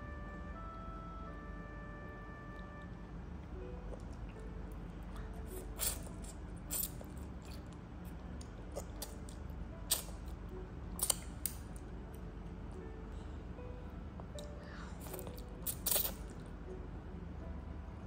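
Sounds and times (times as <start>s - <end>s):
steady low hum: 0.0s - 18.0s
chopsticks clicking: 11.0s - 11.6s.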